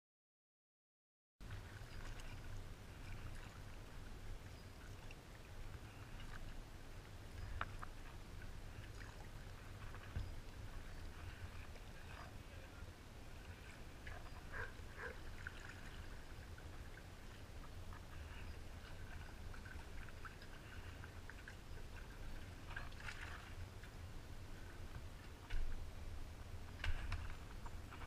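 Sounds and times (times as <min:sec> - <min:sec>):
low steady rumble: 0:01.4 - 0:28.0
water lapping at hull: 0:01.4 - 0:28.0
water splashing off paddle: 0:22.6 - 0:23.6.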